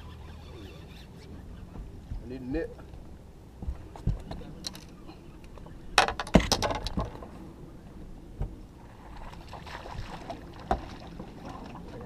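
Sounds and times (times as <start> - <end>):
gear knocking and clattering on boat: 6.0 - 7.3.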